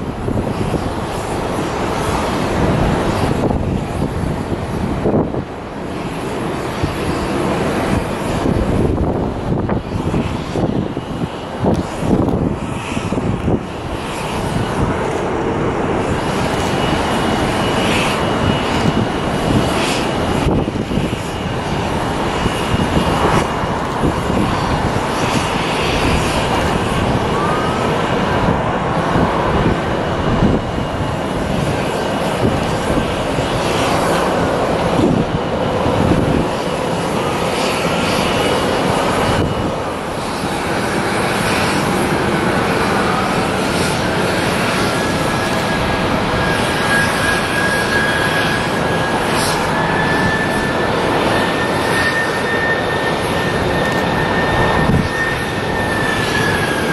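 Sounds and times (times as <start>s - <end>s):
jet engines roaring: 0.0s - 56.9s
thin high whine: 14.2s - 56.9s.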